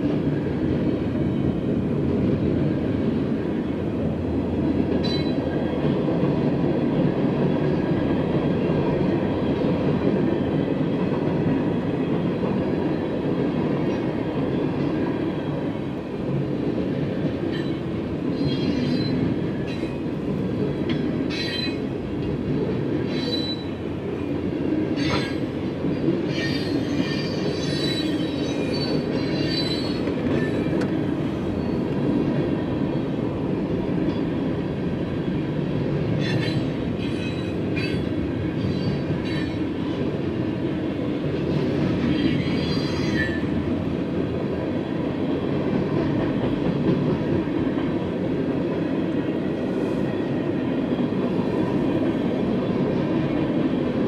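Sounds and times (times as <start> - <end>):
train wheels rumbling on rail: 0.0 - 54.0
high-pitched wheel squeals: 17.5 - 19.9, 23.1 - 23.8, 26.3 - 30.7.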